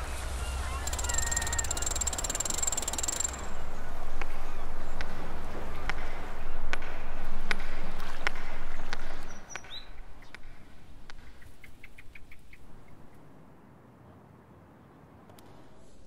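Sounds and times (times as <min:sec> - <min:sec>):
bird chirping: 0:00.0 - 0:03.8
sharp clicks: 0:00.8 - 0:03.6.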